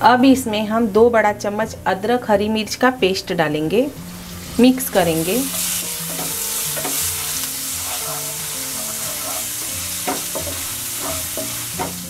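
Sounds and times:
paste sizzling in hot oil: 4.0s - 12.0s
spatula scraping and tapping pan: 5.5s - 12.0s.

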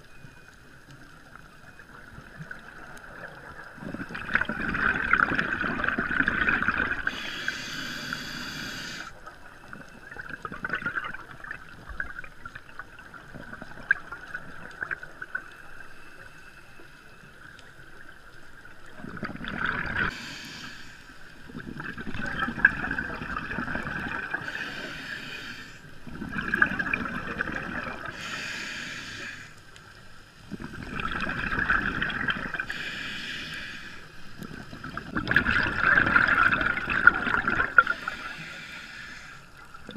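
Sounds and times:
bubbles gurgling underwater: 1.8s - 7.1s, 9.4s - 15.4s, 18.8s - 20.1s, 21.5s - 24.5s, 26.0s - 28.2s, 30.5s - 32.7s, 34.4s - 38.0s.

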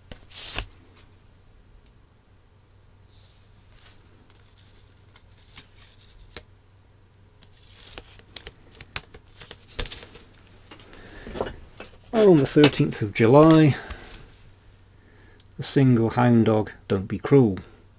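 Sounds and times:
paper and card rustling: 0.1s - 1.0s, 3.1s - 6.4s, 7.4s - 14.5s.

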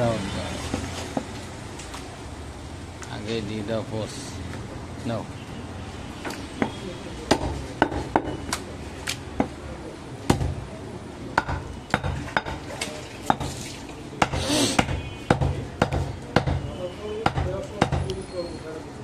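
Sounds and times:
knife knocking on wooden block: 11.4s - 12.6s.

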